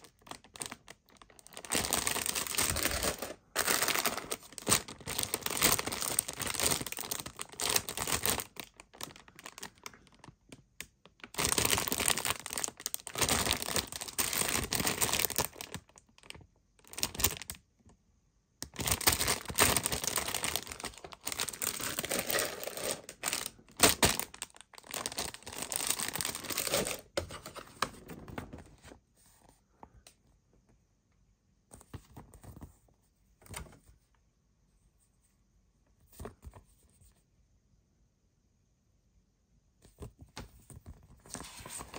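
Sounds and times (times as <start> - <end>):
plastic bags crinkling: 0.0 - 17.6, 18.6 - 27.6.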